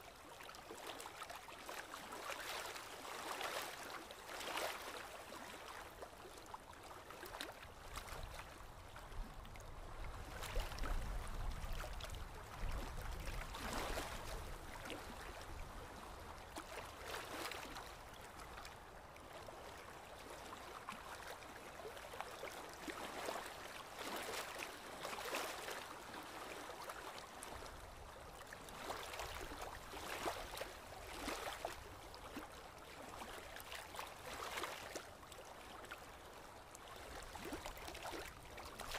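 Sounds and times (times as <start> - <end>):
shallow water sloshing and splashing: 0.0 - 38.9.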